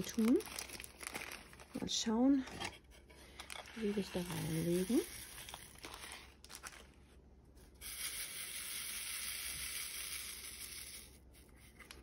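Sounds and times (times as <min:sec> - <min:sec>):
plastic zip bag rustling: 0:00.0 - 0:01.8, 0:03.4 - 0:07.0
tiny beads rattling in plastic tray: 0:03.8 - 0:06.0, 0:07.8 - 0:11.2.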